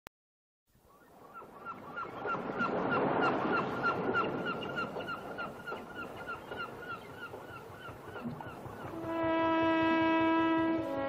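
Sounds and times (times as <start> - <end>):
seabirds calling: 0.9 - 9.1
surf rushing on beach: 2.2 - 6.3.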